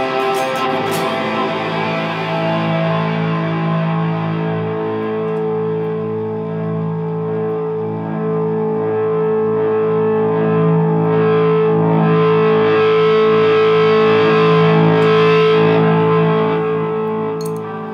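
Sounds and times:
distorted electric guitar chord: 0.0 - 17.9.

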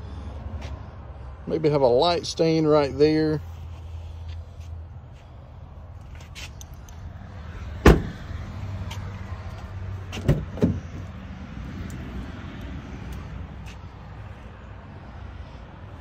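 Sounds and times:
truck door slamming: 7.8 - 8.3, 10.1 - 11.1.

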